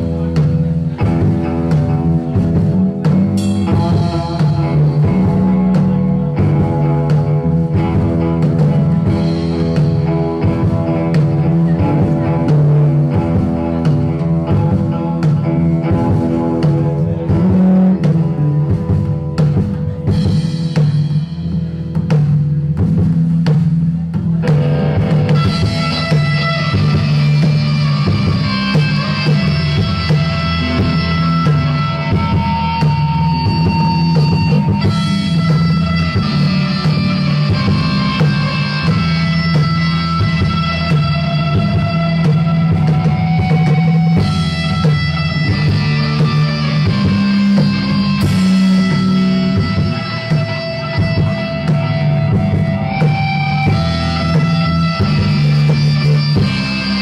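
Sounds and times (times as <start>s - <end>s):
drum kit: 0.0s - 57.0s
electric guitars: 0.0s - 57.0s.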